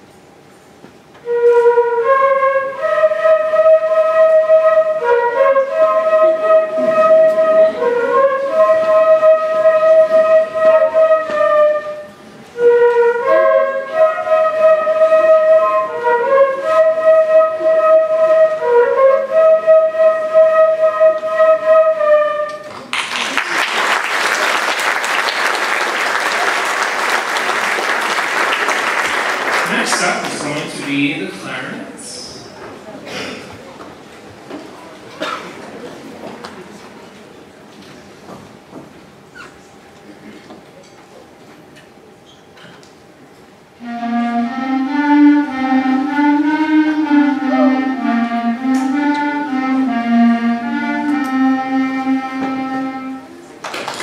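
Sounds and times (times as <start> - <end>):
flutes playing a melody: 1.2 - 22.8, 43.8 - 53.6
audience applauding: 22.8 - 31.2, 53.6 - 54.0.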